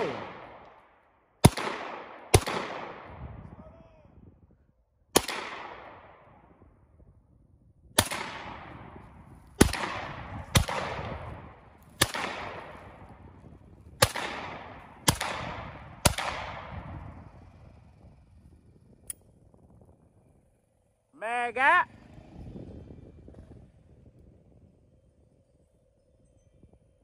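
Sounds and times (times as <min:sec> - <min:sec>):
pistol shots echoing: 0:00.0 - 0:00.7, 0:01.4 - 0:03.2, 0:05.2 - 0:06.2, 0:08.0 - 0:13.0, 0:14.0 - 0:16.8.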